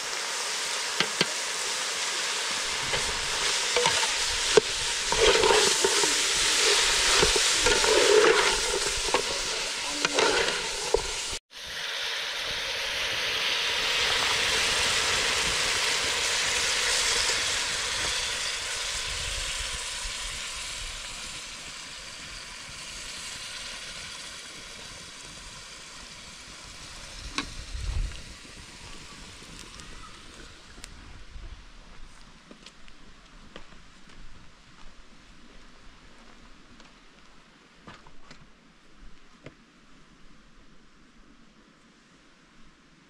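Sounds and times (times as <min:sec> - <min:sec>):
food sizzling in a pan: 0:00.0 - 0:30.8
stirring and scraping in pan: 0:02.4 - 0:11.4.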